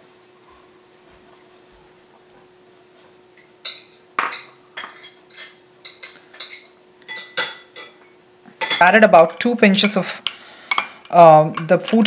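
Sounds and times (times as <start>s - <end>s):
metal spoon clinking against glass: 3.6s - 12.0s.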